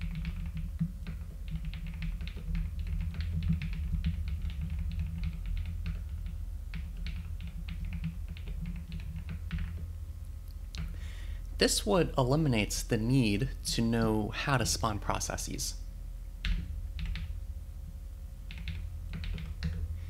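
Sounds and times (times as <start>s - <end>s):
typing on keyboard: 0.0s - 9.8s, 16.4s - 17.3s, 18.5s - 19.8s.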